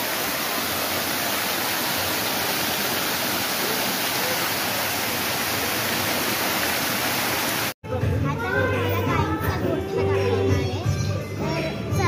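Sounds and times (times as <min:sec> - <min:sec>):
fountain water splashing: 0:00.0 - 0:07.8.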